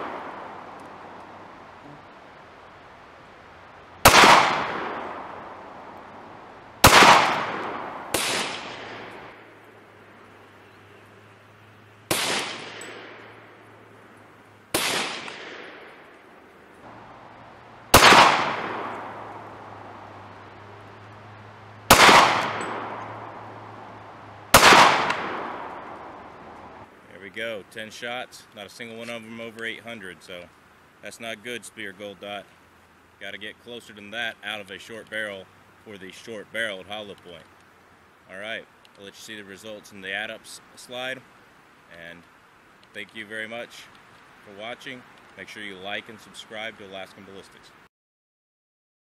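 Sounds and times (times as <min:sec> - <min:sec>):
pistol shots with echo: 0:04.0 - 0:05.6, 0:06.8 - 0:09.4, 0:12.1 - 0:13.4, 0:14.7 - 0:16.0, 0:17.9 - 0:19.5, 0:21.9 - 0:23.5, 0:24.5 - 0:26.3.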